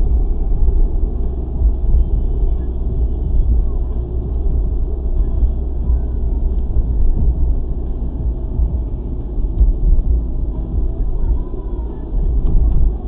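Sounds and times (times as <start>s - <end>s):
car engine rumble: 0.0s - 13.0s
tyres on road: 0.0s - 13.0s.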